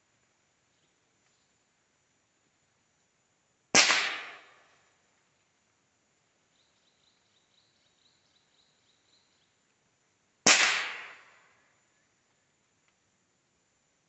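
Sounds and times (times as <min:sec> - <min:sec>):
rifle shot: 0:03.8 - 0:04.6, 0:10.4 - 0:11.4
faint high chirping: 0:06.4 - 0:09.7.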